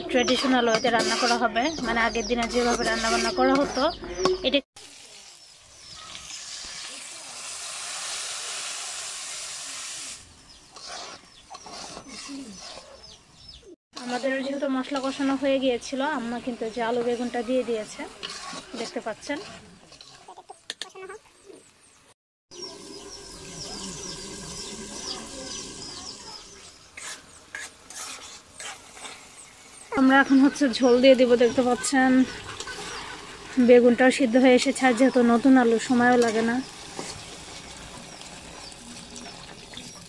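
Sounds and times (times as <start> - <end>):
sizzling hiss of hot oil: 4.8 - 11.2, 22.6 - 40.0
chickens clucking: 20.2 - 21.7, 29.8 - 33.7.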